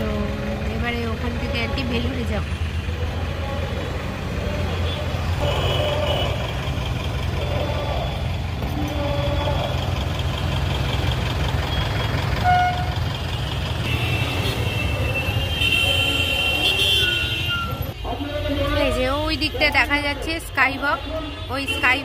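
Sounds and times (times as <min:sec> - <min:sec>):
low rumble of traffic: 0:00.0 - 0:22.0
vehicle horns tooting: 0:04.7 - 0:06.6, 0:12.4 - 0:13.0, 0:13.8 - 0:18.9, 0:20.8 - 0:22.0.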